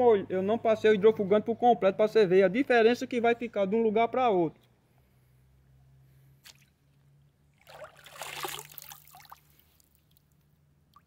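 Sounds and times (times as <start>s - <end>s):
water splashing: 7.5s - 11.0s.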